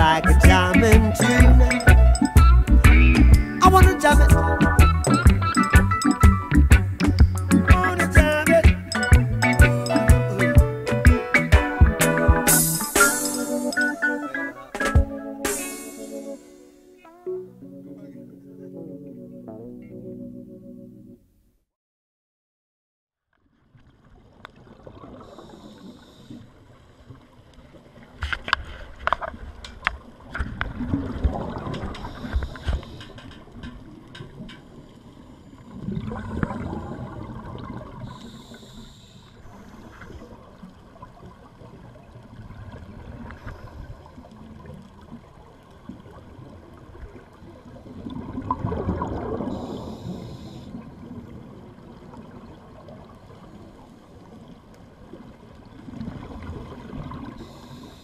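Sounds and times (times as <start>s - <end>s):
short hiss: 12.5s - 14.0s, 15.5s - 16.8s, 38.1s - 39.4s
gurgling exhaled bubbles: 30.5s - 32.9s, 35.7s - 38.6s, 39.8s - 53.8s
diver breathing through regulator: 31.9s - 33.2s, 38.1s - 40.1s, 49.5s - 50.8s, 57.4s - 58.0s.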